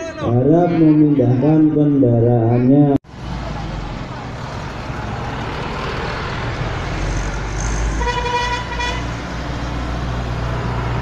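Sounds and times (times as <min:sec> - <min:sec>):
diesel truck engine rumbling: 0:00.0 - 0:11.0
truck horn: 0:07.7 - 0:09.2.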